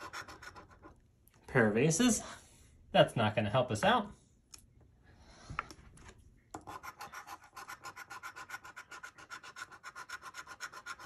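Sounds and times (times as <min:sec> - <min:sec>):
coin scratching lottery ticket: 0:06.7 - 0:11.0.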